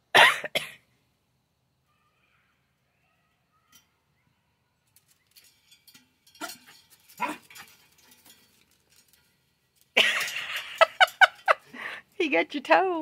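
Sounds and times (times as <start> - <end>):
dog jumping against metal gate: 5.0 - 9.3.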